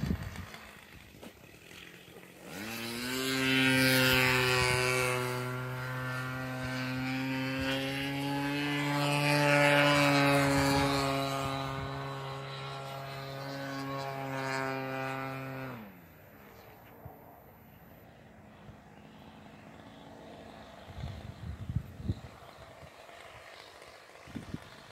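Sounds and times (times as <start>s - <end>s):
model airplane engine buzzing: 0.0s - 24.9s.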